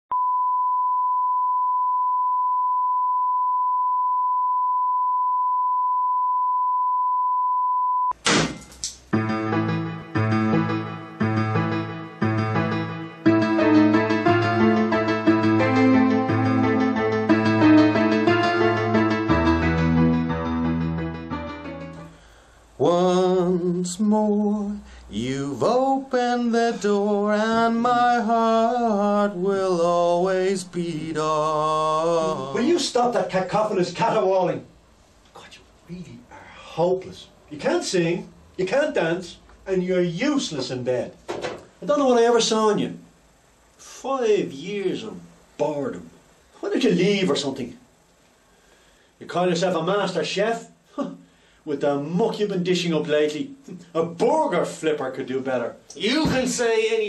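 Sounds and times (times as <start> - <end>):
sine-wave test tone: 0.1 - 8.2
piano music: 9.1 - 22.1
man singing unaccompanied: 22.8 - 33.0.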